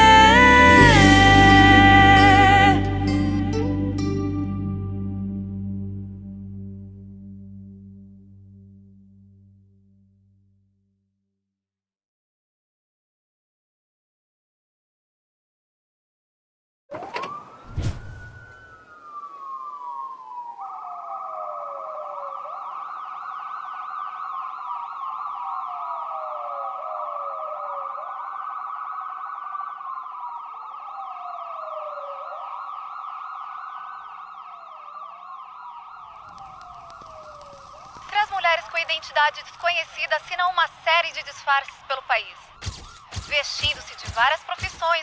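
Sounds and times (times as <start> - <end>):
police sirens wailing: 0.0 - 4.8, 16.9 - 45.0
warbling siren: 16.9 - 45.0
sharp thump: 17.7 - 18.3.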